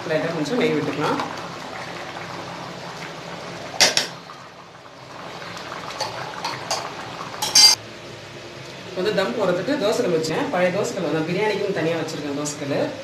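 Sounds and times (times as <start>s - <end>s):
food bubbling in pot: 0.0s - 7.7s
metal spoon clinking on pot: 6.7s - 7.8s.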